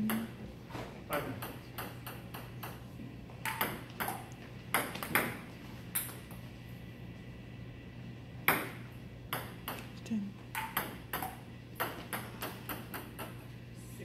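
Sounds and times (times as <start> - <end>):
table tennis ball hits: 0.0 - 0.4, 1.2 - 2.8, 3.4 - 6.3, 8.4 - 9.9, 10.5 - 13.4
steady low hum: 0.0 - 14.0.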